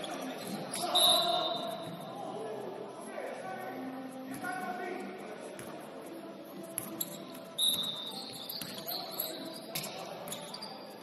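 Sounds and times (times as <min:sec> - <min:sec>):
shoes squeaking on gym floor: 0:00.0 - 0:02.0, 0:06.6 - 0:11.0
ball bouncing: 0:06.8 - 0:08.9.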